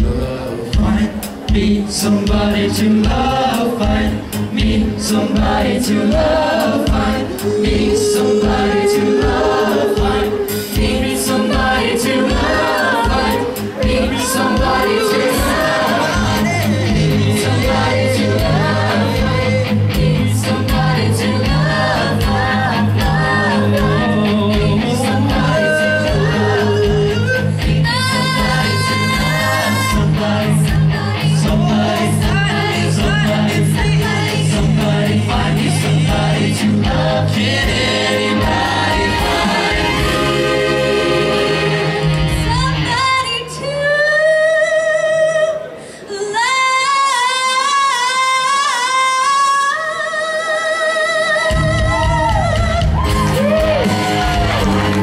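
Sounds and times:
accompaniment with steady beat: 0.0 - 42.8
choir singing into microphones: 0.0 - 44.2, 45.3 - 55.0.

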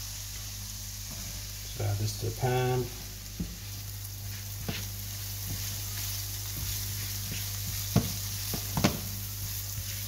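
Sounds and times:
onions sizzling in oil: 0.0 - 10.0
spatula scraping and tapping pan: 4.3 - 10.0.

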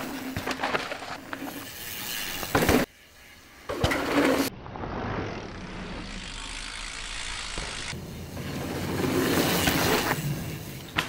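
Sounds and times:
bike tyres crunching over dirt: 0.0 - 11.0.

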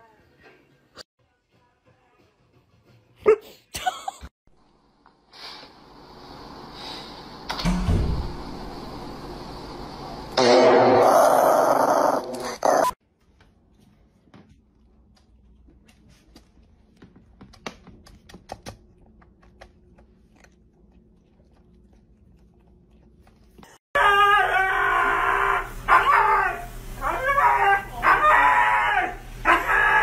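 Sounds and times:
dog howling and yowling: 24.0 - 30.0.

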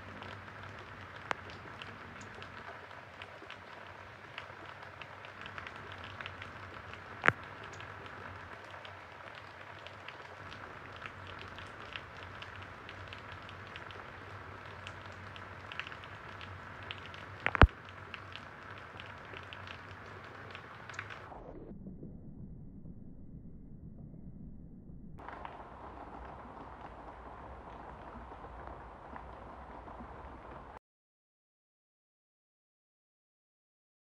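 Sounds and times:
light rain pattering and dripping: 0.0 - 21.4, 25.2 - 30.8.

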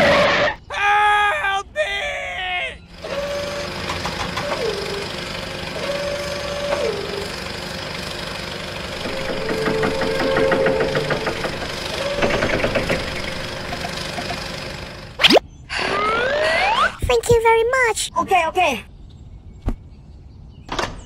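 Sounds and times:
toy excavator engine rumble: 2.8 - 15.2
motor whines: 2.9 - 17.0.

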